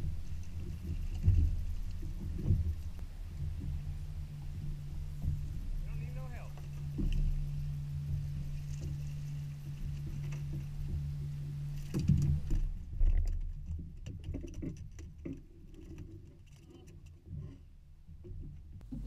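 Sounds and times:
electric trolling motor humming: 0:00.0 - 0:12.9.

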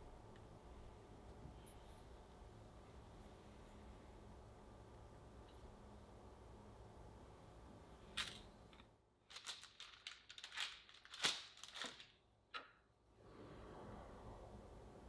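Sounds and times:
paper crinkling: 0:08.2 - 0:12.2.

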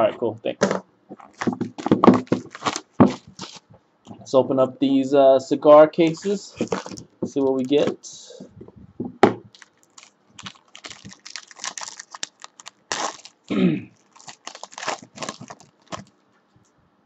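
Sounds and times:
foil wrapper crinkling and tearing: 0:01.2 - 0:03.6, 0:06.2 - 0:07.7, 0:09.5 - 0:16.1.

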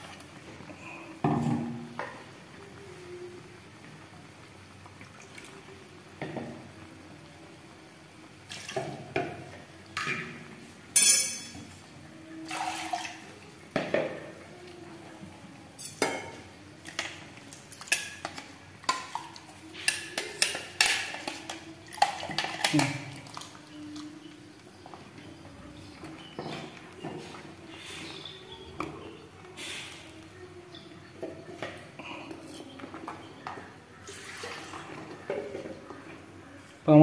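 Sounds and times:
spoon clinks: 0:11.0 - 0:11.6.

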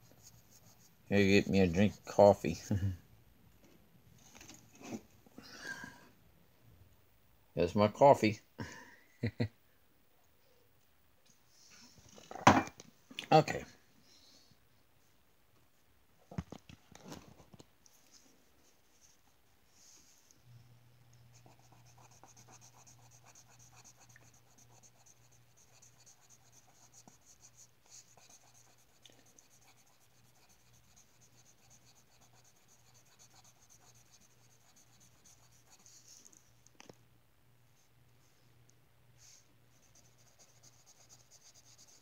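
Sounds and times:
marker scratching on paper: 0:21.3 - 0:36.2, 0:39.8 - 0:42.0.

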